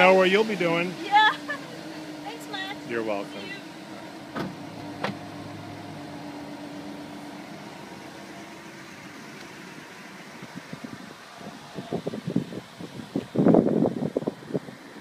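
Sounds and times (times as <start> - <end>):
car engine idling: 0.0 - 15.0
wind buffeting microphone: 10.2 - 15.0.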